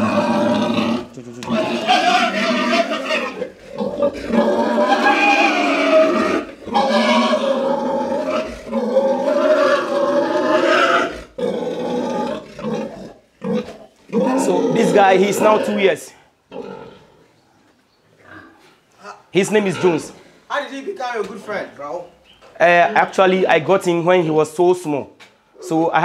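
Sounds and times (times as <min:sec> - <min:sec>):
pig squealing loudly: 0:00.0 - 0:17.2, 0:19.4 - 0:20.2.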